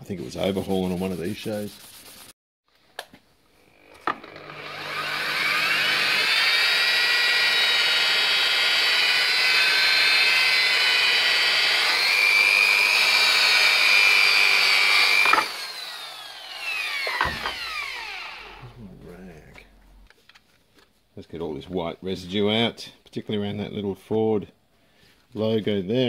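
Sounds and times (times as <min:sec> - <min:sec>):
buffing wheel whining: 0:03.7 - 0:18.8.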